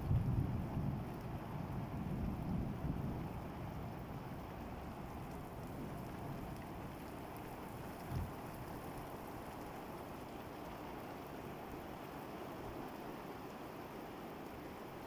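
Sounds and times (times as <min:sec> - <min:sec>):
heavy rain on concrete roof: 0:00.0 - 0:15.0.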